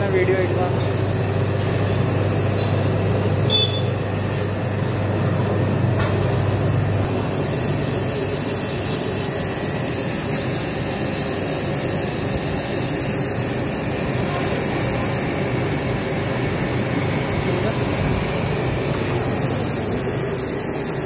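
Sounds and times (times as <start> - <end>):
pressure washer running: 0.0 - 21.0
water spray hissing: 7.4 - 13.4.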